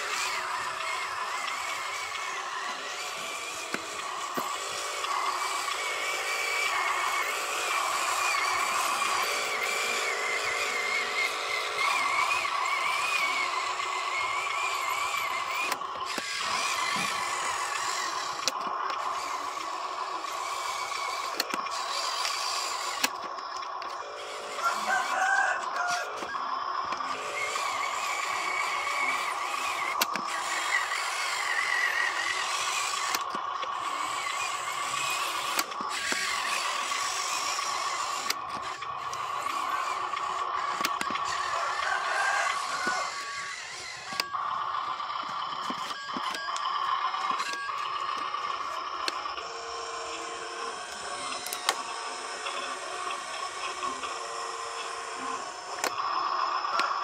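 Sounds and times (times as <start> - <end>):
electric motor and gearbox whining: 0.0 - 57.0
sharp clicks: 0.1 - 24.1, 26.2 - 41.4, 50.9 - 54.2.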